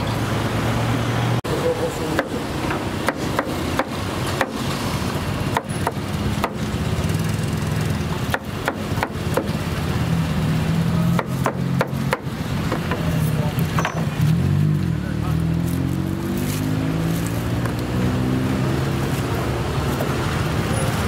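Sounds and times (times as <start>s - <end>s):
street noise: 0.0s - 21.0s
chopping on wooden board: 2.1s - 4.7s, 5.5s - 6.7s, 8.2s - 9.6s, 11.1s - 13.1s.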